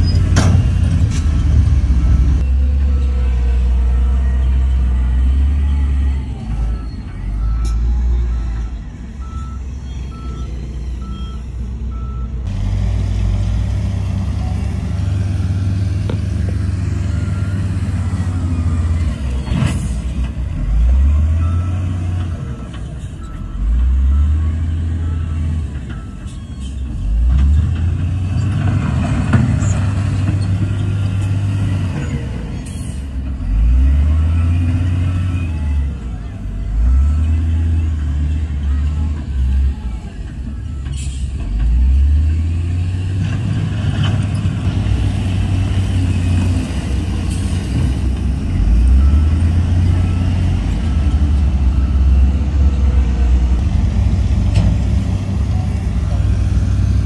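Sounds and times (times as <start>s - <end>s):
heavy diesel engine revving: 0.0s - 26.2s, 26.8s - 57.0s
reversing alarm beeping: 2.4s - 12.4s, 48.6s - 53.0s.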